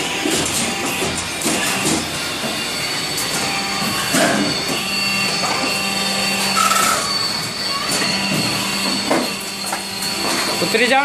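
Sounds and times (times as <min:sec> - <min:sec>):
machine humming with high whine: 0:00.0 - 0:11.0
sharp machine clacks: 0:06.4 - 0:11.0.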